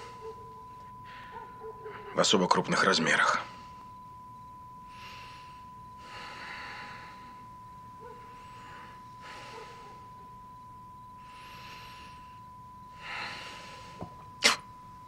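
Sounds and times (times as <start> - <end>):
heavy breathing: 4.8 - 10.3, 11.1 - 14.6.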